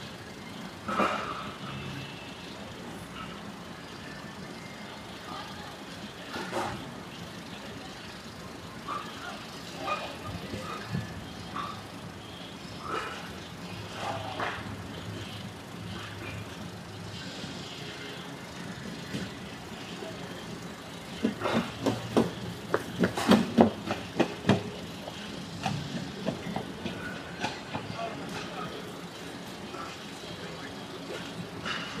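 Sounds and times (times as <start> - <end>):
generator humming: 0.0 - 32.0
sharp knocks and clanks: 21.2 - 27.9.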